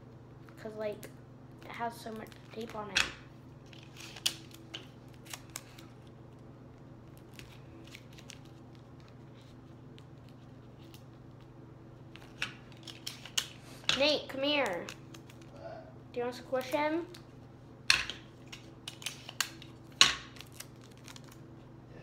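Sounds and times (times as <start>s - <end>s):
steady low hum: 0.0s - 22.0s
tape and paper crinkling: 0.4s - 11.5s, 12.1s - 13.9s, 14.5s - 15.6s, 18.3s - 21.5s.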